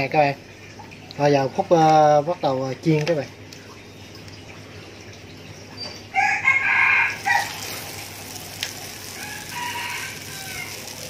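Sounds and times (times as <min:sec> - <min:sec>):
rooster crowing: 0:06.1 - 0:08.1, 0:08.9 - 0:11.0
food sizzling in hot oil: 0:06.2 - 0:11.0.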